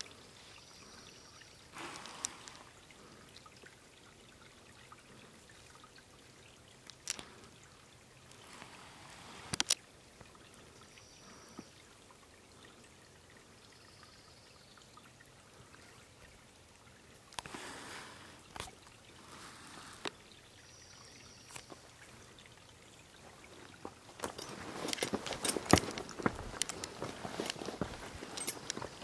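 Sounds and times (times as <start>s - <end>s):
small waterfall trickling: 0.0s - 29.0s
footsteps on dirt trail: 24.1s - 29.0s.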